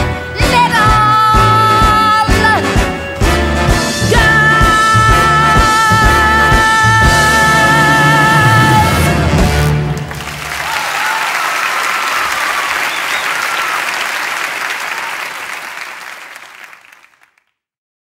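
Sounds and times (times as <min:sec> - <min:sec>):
audience applauding: 0:09.7 - 0:17.5.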